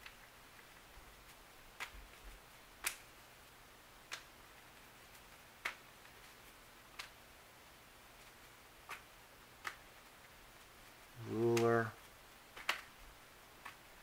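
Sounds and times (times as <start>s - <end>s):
faint sharp clicks: 2.8s - 3.1s, 4.1s - 6.2s, 6.9s - 7.2s, 12.5s - 12.9s.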